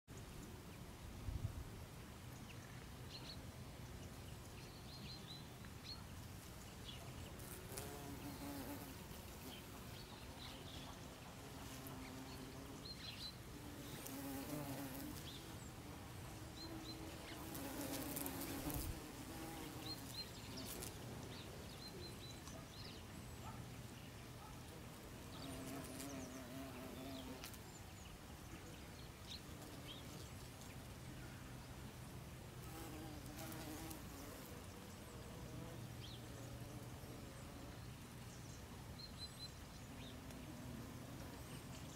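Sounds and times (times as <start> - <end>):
honeybees buzzing: 7.3 - 21.3.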